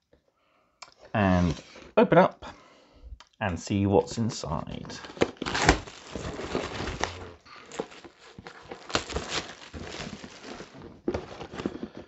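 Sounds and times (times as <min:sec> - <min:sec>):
shrink wrap crinkling: 0:04.9 - 0:12.0.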